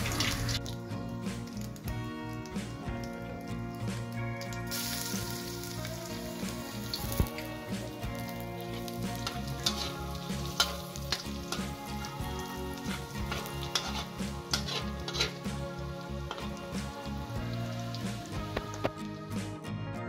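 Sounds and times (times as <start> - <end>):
garlic sizzling in oil: 0.0 - 19.0
background music with low beat: 0.0 - 20.0
spatula scraping a pan: 9.2 - 11.7, 12.8 - 15.6.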